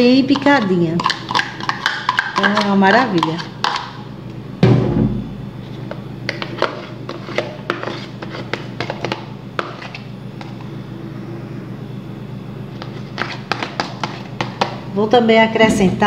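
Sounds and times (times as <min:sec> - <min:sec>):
spatula clicking and tapping: 0:00.1 - 0:03.9, 0:13.2 - 0:14.8.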